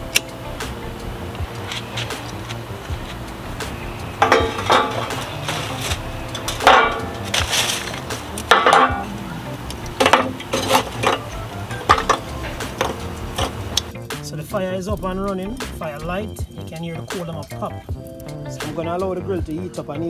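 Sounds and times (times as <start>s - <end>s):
charcoal clattering into metal grill: 1.6s - 13.9s.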